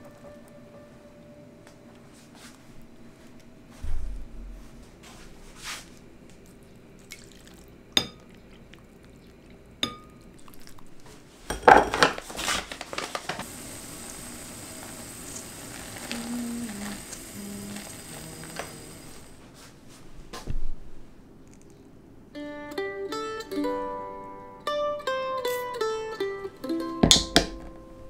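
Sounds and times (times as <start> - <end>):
water splashing and sloshing: 7.0 - 9.5
steady hiss: 12.3 - 20.2.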